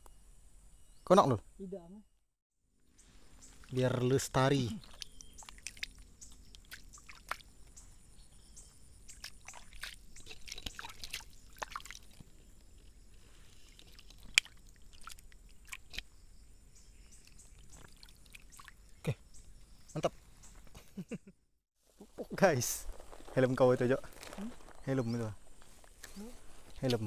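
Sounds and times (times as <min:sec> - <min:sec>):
water sloshing and splashing: 0:03.3 - 0:07.7, 0:09.1 - 0:16.0, 0:17.2 - 0:19.0.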